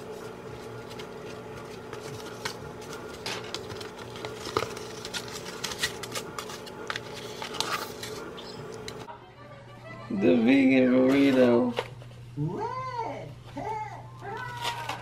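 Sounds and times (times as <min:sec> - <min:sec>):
tortilla wrapping rustling: 0:00.0 - 0:09.1
steady low hum: 0:00.0 - 0:10.9.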